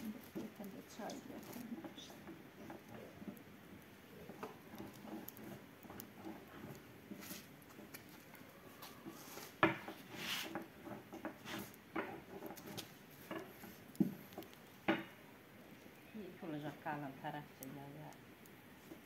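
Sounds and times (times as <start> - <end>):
dough and cloth rustling: 0.0 - 14.7
rolling pin on wooden board: 4.3 - 8.1, 8.8 - 15.1.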